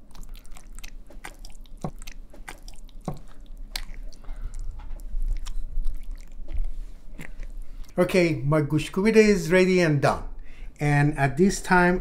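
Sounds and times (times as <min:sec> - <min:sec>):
wet squelching of mashing: 0:00.0 - 0:08.0.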